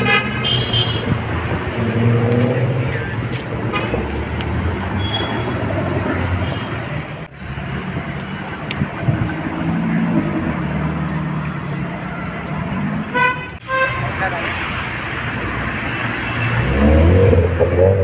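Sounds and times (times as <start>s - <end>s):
car horn toot: 0.0s - 1.2s, 4.9s - 5.7s, 13.1s - 14.2s
traffic noise: 0.0s - 18.0s
sports cars driving past: 1.0s - 13.2s.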